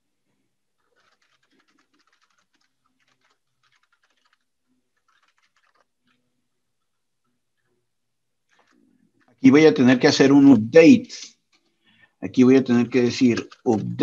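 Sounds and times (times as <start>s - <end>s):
typing on computer keyboard: 0.8s - 6.2s, 8.5s - 9.4s, 13.2s - 14.0s.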